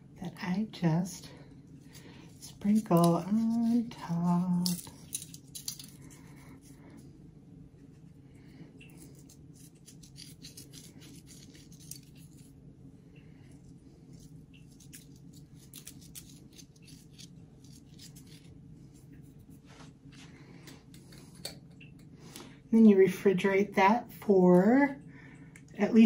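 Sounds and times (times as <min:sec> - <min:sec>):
steady low hum: 0:00.0 - 0:26.0
salt sprinkling onto foil: 0:02.0 - 0:06.0, 0:14.6 - 0:18.5.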